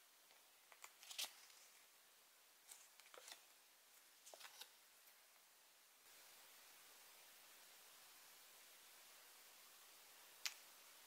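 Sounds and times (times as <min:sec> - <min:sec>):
paper card crinkling: 0:00.7 - 0:01.7, 0:02.6 - 0:03.6, 0:04.2 - 0:04.8.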